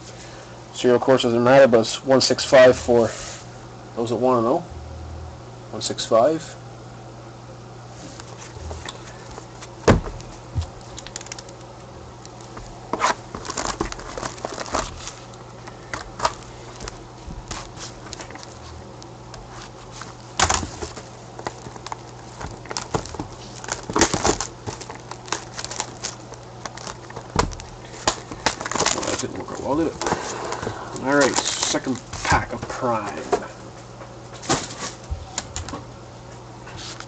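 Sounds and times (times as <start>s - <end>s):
steady low hum: 0.0s - 37.0s
plastic shrink wrap crinkling: 8.3s - 33.2s
clicks and knocks of box handling: 20.4s - 33.5s.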